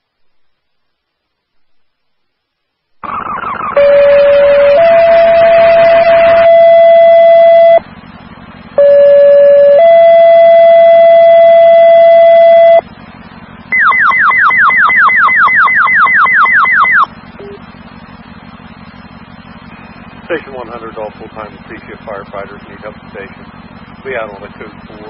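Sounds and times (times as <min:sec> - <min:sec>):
pager tones over radio: 0:03.0 - 0:07.8.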